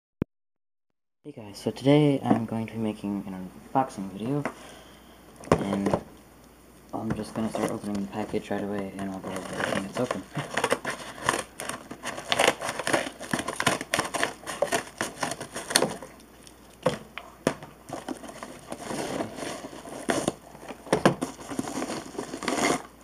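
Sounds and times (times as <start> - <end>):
paper mailer bag crinkling: 7.2 - 16.2, 17.8 - 23.0.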